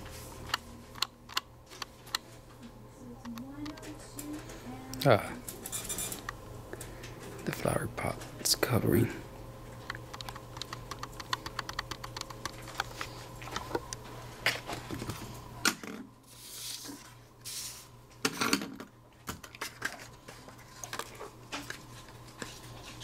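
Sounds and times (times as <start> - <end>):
low steady hum: 0.0 - 23.0
computer keyboard typing: 9.9 - 12.6.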